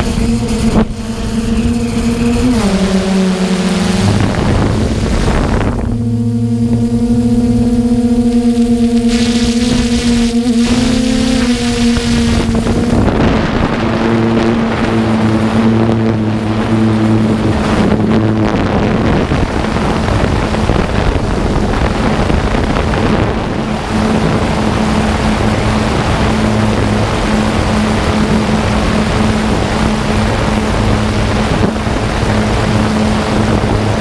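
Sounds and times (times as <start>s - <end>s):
drone propellers humming: 0.0s - 34.0s
wind rushing over microphone: 0.0s - 34.0s.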